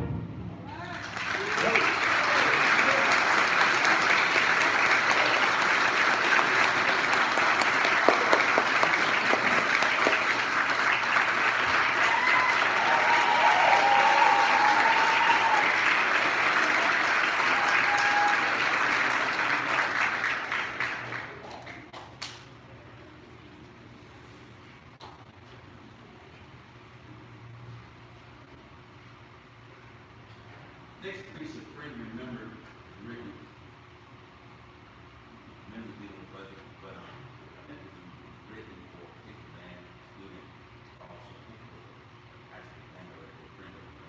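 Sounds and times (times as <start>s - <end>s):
audience applauding: 0.7s - 22.4s.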